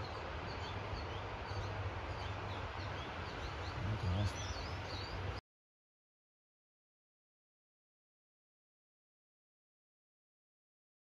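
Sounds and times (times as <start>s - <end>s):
small birds chirping: 0.0s - 5.4s.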